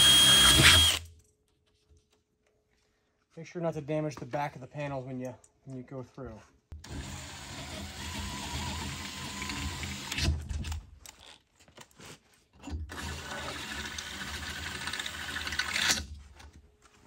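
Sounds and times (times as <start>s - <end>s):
power drill boring through metal: 0.0s - 1.0s, 6.8s - 10.3s, 12.9s - 16.0s.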